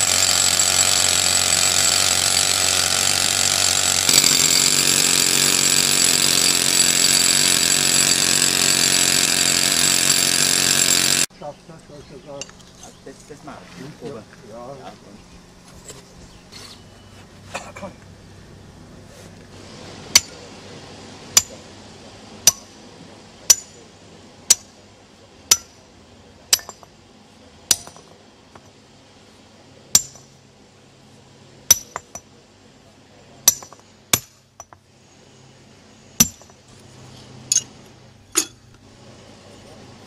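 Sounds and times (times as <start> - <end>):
sledgehammer striking steel wedges: 22.4 - 22.8, 23.5 - 23.8, 24.5 - 24.7, 25.5 - 25.8, 26.5 - 26.9, 27.7 - 28.1, 29.9 - 30.3, 31.7 - 32.2, 33.4 - 34.8, 36.2 - 36.6.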